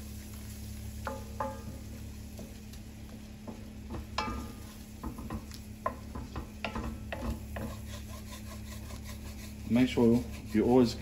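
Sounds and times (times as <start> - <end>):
light frying sizzle: 0.0 - 11.0
wooden spatula scraping a pan: 6.4 - 11.0.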